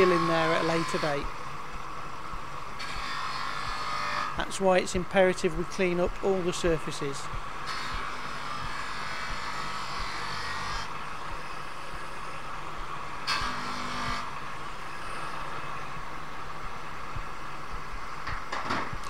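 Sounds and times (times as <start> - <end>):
polishing lathe humming and hissing: 0.0 - 1.5, 2.8 - 16.1.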